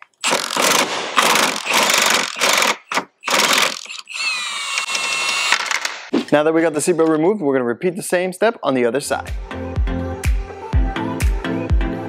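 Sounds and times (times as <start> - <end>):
impact driver hammering: 0.2 - 4.0
impact driver whine: 0.2 - 5.9.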